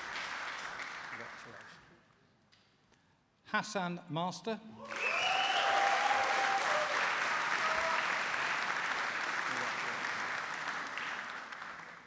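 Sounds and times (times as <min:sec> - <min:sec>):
audience applauding: 0:00.0 - 0:01.8, 0:04.9 - 0:12.0
person cheering: 0:07.6 - 0:08.2.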